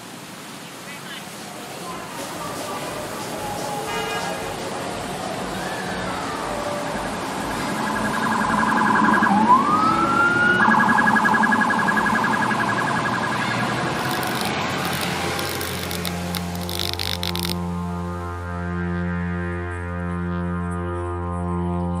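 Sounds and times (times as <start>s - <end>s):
street noise: 0.0s - 22.0s
low steady drone: 2.6s - 22.0s
emergency vehicle siren: 3.0s - 17.6s.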